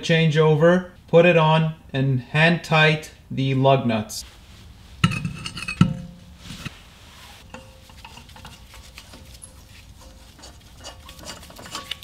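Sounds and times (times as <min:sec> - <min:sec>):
lug nuts clinking on metal wheel: 0:05.0 - 0:06.2, 0:07.5 - 0:12.0.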